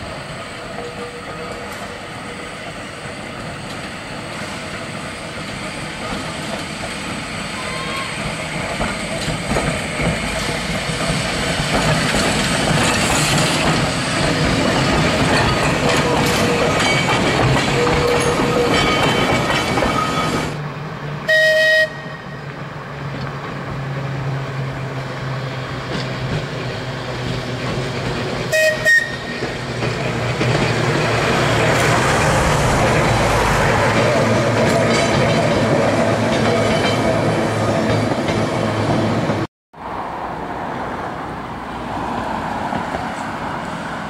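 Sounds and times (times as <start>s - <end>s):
tram wheels rumbling on rails: 0.0s - 44.0s
tram whistle toots: 7.3s - 9.4s, 21.2s - 22.6s, 28.5s - 29.7s.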